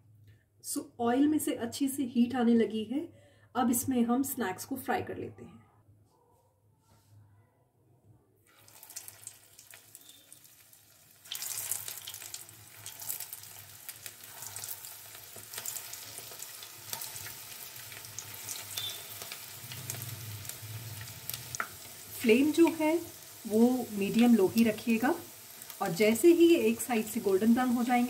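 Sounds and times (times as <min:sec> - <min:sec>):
fritters sizzling in hot oil: 0:08.5 - 0:28.0
oil crackling and popping: 0:08.5 - 0:28.0.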